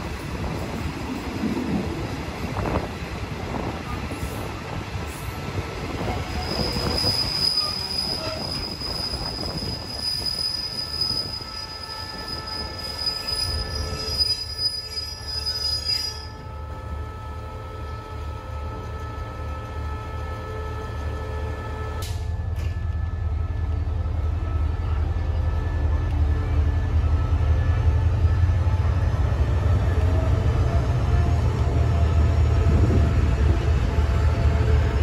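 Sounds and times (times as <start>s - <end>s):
train rumbling on rails: 0.0s - 35.0s
metal wheel squeal: 6.2s - 16.4s.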